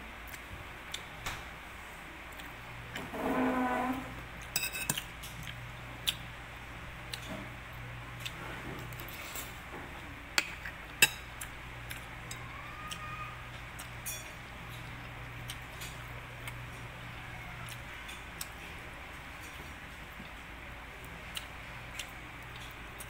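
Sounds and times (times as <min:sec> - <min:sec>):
person chewing food: 0:04.4 - 0:06.3, 0:10.0 - 0:17.0, 0:17.6 - 0:18.8, 0:21.0 - 0:23.0.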